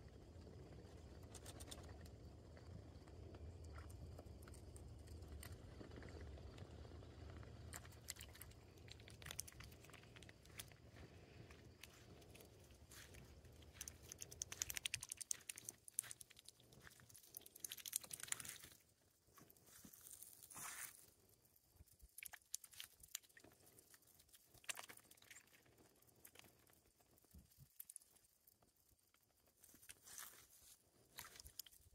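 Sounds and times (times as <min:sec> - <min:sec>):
small wet clicks and splashes: 0:00.4 - 0:31.9
goose bill dabbling in puddle: 0:07.7 - 0:10.9, 0:11.7 - 0:18.8.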